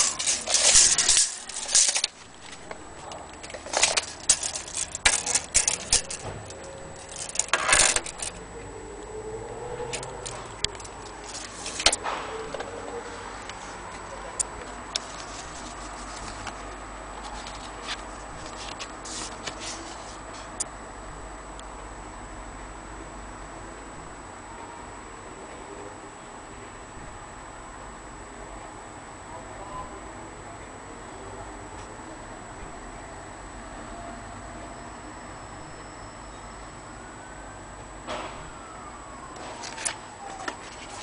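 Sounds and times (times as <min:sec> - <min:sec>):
handling clicks and knocks: 0:00.0 - 0:08.4, 0:09.8 - 0:16.6.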